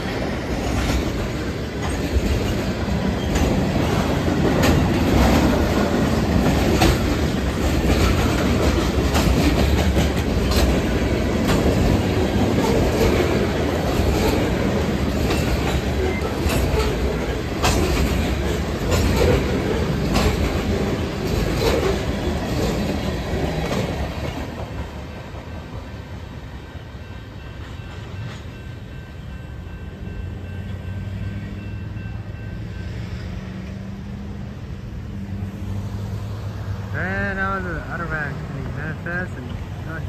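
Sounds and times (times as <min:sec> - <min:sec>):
wheels clacking over rail joints: 0:00.0 - 0:25.8
freight train rumbling past: 0:00.0 - 0:40.0
low hum of road traffic: 0:00.0 - 0:40.0.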